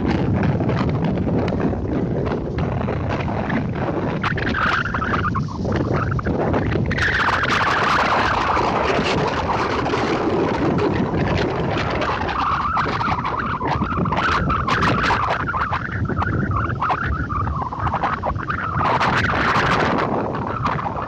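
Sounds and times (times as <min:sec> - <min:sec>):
waves breaking on beach: 0:00.1 - 0:21.0.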